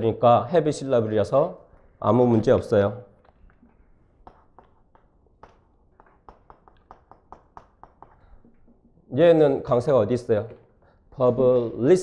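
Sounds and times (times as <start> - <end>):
chalk tapping on chalkboard: 3.2 - 8.9.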